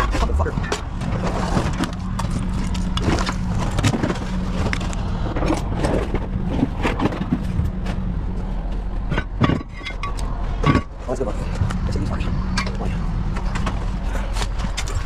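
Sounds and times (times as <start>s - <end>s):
metal clanks and knocks: 0.0s - 11.8s
heavy equipment engine running: 0.0s - 15.0s.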